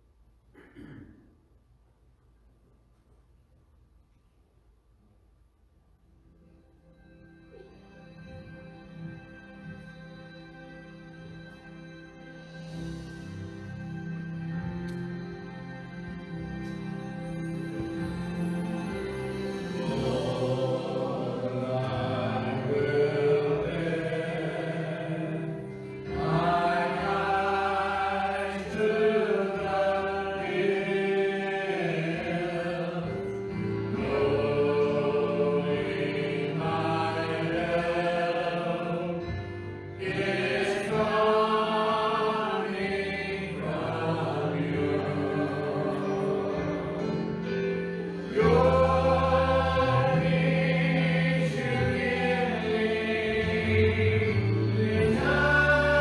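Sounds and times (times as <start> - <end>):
instrumental accompaniment: 6.6 - 56.0
mixed voices singing worship song: 15.8 - 56.0.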